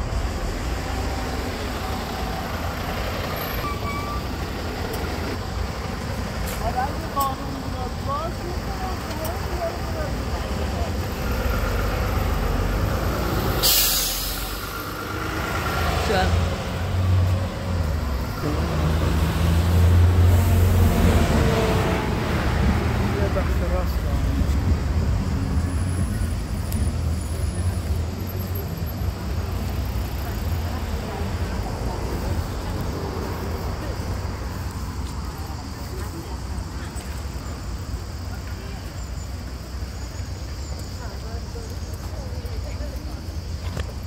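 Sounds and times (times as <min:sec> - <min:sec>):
bus engine low rumble: 0:00.0 - 0:44.0
road traffic noise: 0:00.0 - 0:44.0
short high squeal: 0:03.4 - 0:04.4.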